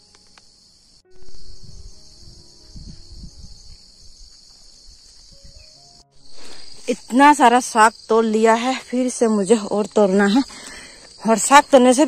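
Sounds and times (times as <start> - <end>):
high-pitched insect chorus: 0.0 - 12.0
low rumbling microphone bumps: 1.1 - 5.6.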